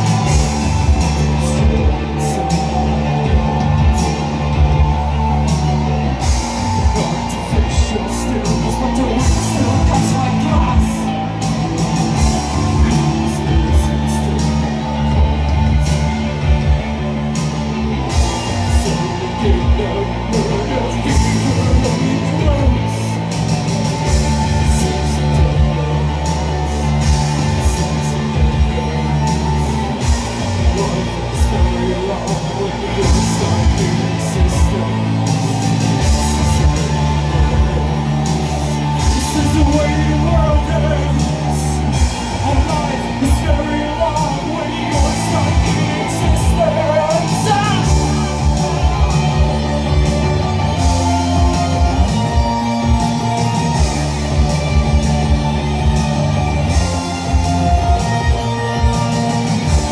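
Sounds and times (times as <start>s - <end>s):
bass guitar: 0.0s - 59.9s
electric guitar: 0.0s - 59.9s
person singing: 0.0s - 59.9s
drum hits: 41.9s - 59.9s.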